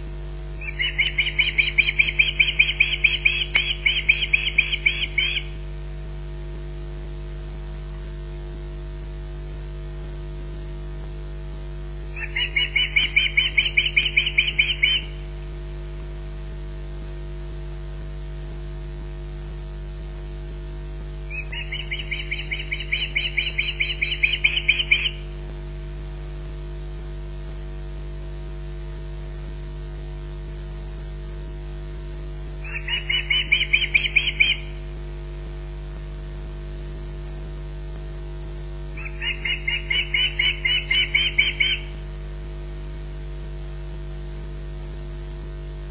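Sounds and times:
electrical hum: 0:00.0 - 0:45.9
osprey high chirps: 0:00.6 - 0:05.6, 0:12.2 - 0:15.2, 0:21.3 - 0:25.2, 0:32.6 - 0:34.8, 0:39.0 - 0:42.0.

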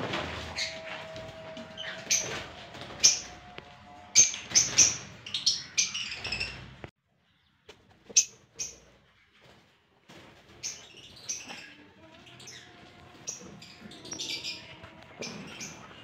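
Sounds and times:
lovebirds chirping: 0:00.3 - 0:08.9, 0:10.5 - 0:16.0.

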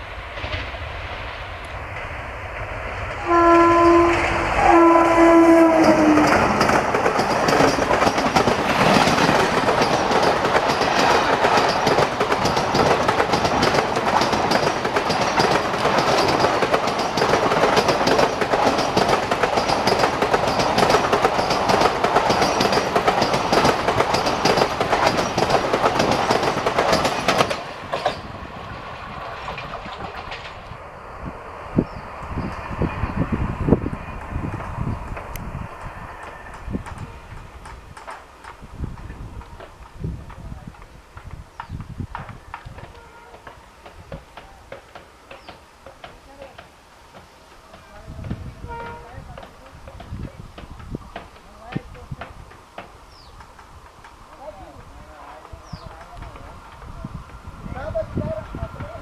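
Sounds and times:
train rushing past: 0:00.0 - 0:59.0
locomotive horn blasts: 0:03.2 - 0:06.3, 0:42.9 - 0:43.6, 0:48.6 - 0:49.2
train wheels clattering: 0:04.0 - 0:28.4, 0:29.0 - 0:30.7, 0:36.2 - 0:57.0.

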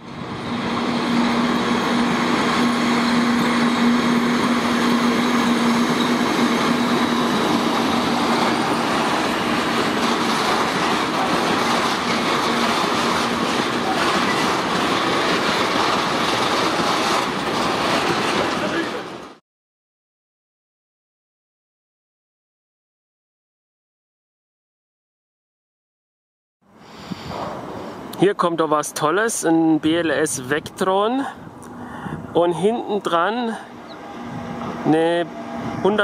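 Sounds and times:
freight train wheels rumbling: 0:00.0 - 0:19.4, 0:27.3 - 0:36.0.

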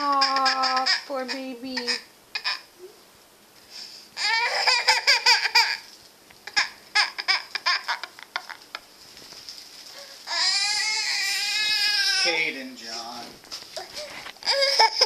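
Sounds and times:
toddler wailing: 0:00.0 - 0:02.6, 0:04.2 - 0:08.6, 0:10.0 - 0:12.5, 0:13.8 - 0:15.0
toddler laughing: 0:00.0 - 0:02.7, 0:04.2 - 0:08.9, 0:13.8 - 0:15.0.

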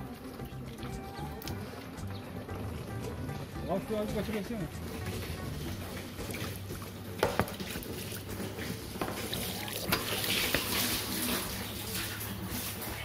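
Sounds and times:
hose water splashing into tank: 0:05.0 - 0:13.0.

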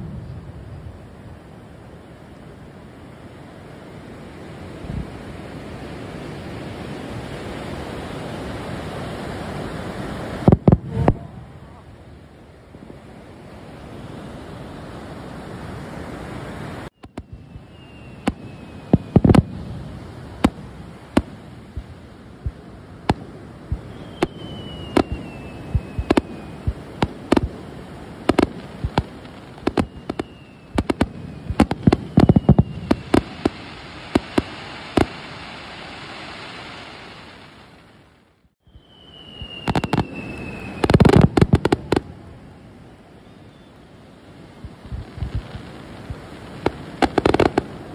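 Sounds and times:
surf rushing: 0:01.0 - 0:38.4, 0:39.0 - 0:47.9
fireworks bangs: 0:09.8 - 0:11.8, 0:17.0 - 0:38.1, 0:38.7 - 0:42.6, 0:44.6 - 0:47.9
fireworks falling whistles: 0:16.5 - 0:47.9.

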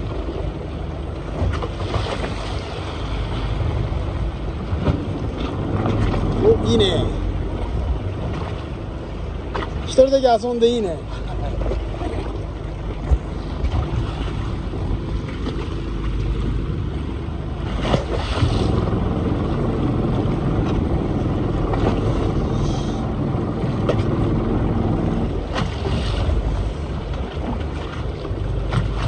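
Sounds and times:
boat engine running: 0:00.0 - 0:29.0
water washing along hull: 0:00.0 - 0:29.0
wind on microphone: 0:11.5 - 0:29.0.

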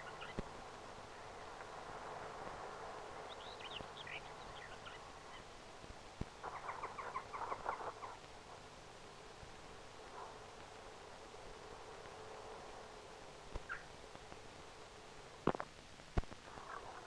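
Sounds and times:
birds chirping and chattering: 0:00.0 - 0:00.4, 0:03.2 - 0:05.5, 0:06.4 - 0:08.3, 0:13.6 - 0:14.0
steady hiss: 0:00.0 - 0:17.0.

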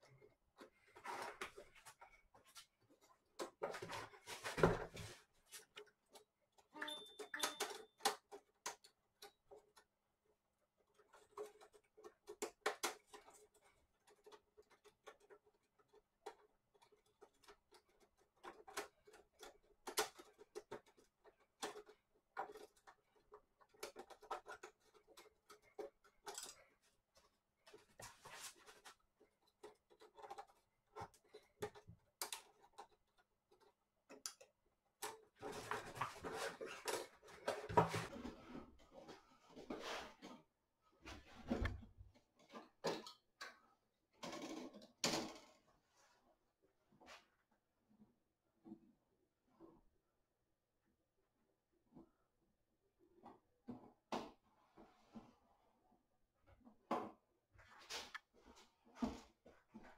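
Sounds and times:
hands clicking and tapping parts: 0:00.0 - 0:38.1.

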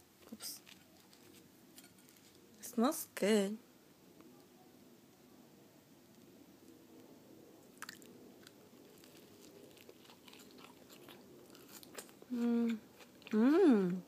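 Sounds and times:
chewing toasted sandwich: 0:00.6 - 0:02.4, 0:07.7 - 0:13.5.

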